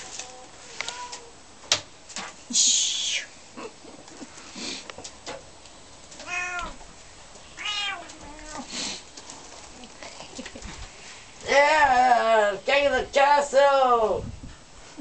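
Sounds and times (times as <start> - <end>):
kitten meowing: 6.2 - 6.8, 7.6 - 8.6.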